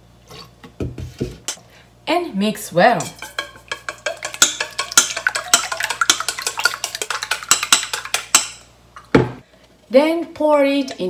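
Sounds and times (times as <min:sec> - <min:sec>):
chopsticks clicking against a metal bowl: 0:03.2 - 0:08.6.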